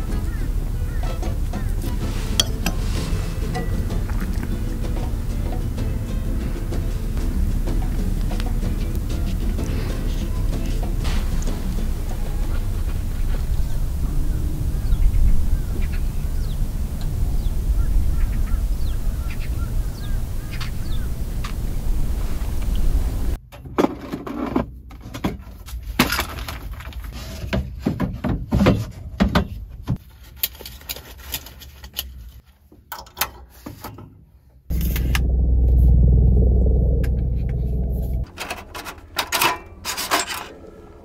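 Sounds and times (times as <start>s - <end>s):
steady low rumbling: 0.0s - 23.4s, 34.7s - 41.0s.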